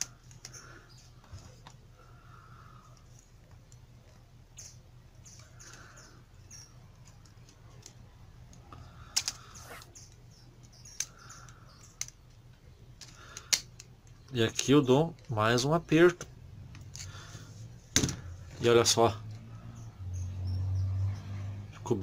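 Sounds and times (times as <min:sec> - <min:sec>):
wire clicking and scraping on metal: 0:00.0 - 0:01.8, 0:02.8 - 0:12.4
faint steady hum: 0:00.0 - 0:22.0.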